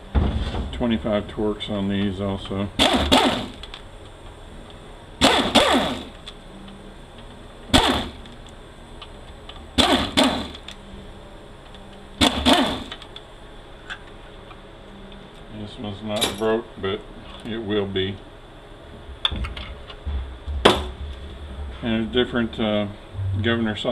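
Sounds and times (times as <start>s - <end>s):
power driver spinning out screws: 2.8s - 3.8s, 5.2s - 6.2s, 7.8s - 8.2s, 9.8s - 10.6s, 12.2s - 13.0s.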